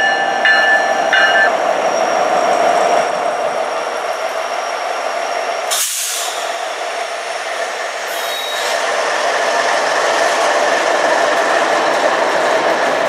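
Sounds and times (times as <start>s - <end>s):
freight train rumbling: 0.0s - 13.0s
hissing air burst: 5.7s - 6.6s.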